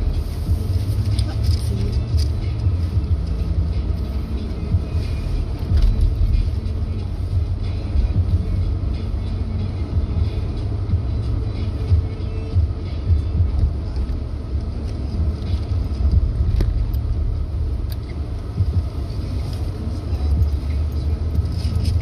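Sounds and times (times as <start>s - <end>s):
car road and engine rumble: 0.0s - 22.0s.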